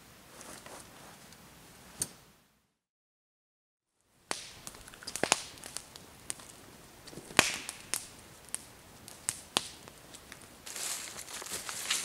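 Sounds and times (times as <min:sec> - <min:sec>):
footsteps snapping dry twigs: 0:04.3 - 0:12.0.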